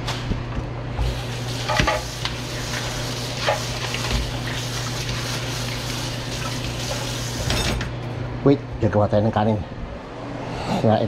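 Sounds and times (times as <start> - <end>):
tap water splashing in sink: 1.0 - 7.6.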